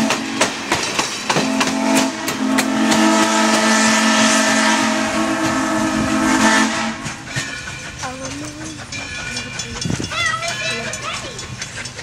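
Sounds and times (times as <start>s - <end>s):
steam locomotive whistle: 0.0s - 0.6s, 1.3s - 7.7s
train wheels clicking over rail joints: 0.0s - 12.0s.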